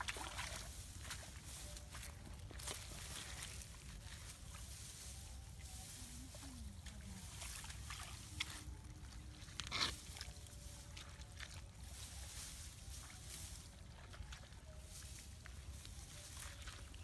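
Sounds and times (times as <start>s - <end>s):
grass stalks rustling: 0.0s - 17.0s.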